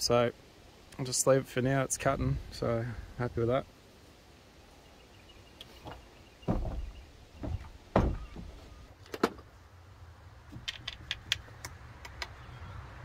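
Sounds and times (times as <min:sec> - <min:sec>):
dull thumps: 0:05.8 - 0:09.4.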